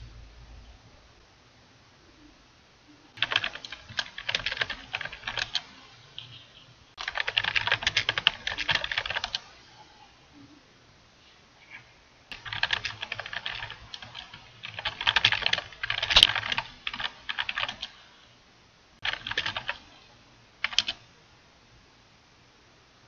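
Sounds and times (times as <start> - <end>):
typing on a computer keyboard: 3.2 - 6.3, 7.0 - 9.5, 12.3 - 18.0, 19.0 - 19.9, 20.6 - 21.0.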